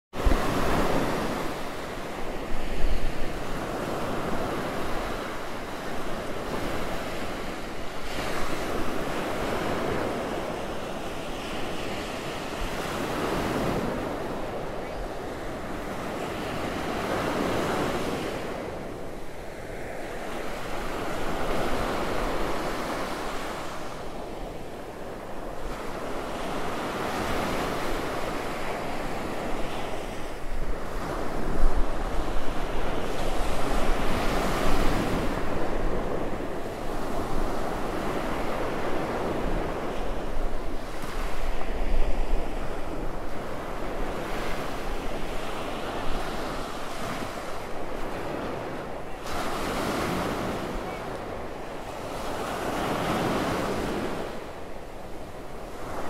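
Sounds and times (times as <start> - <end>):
wind rumble on microphone: 0.1 - 56.0
surf breaking on beach: 25.8 - 54.7.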